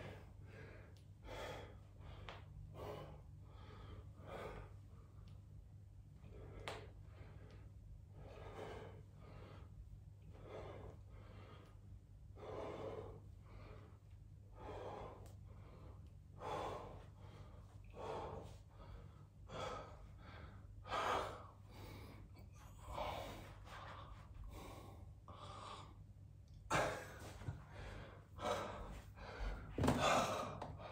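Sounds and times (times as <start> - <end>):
man breathing hard: 0.0 - 5.4, 6.2 - 30.9.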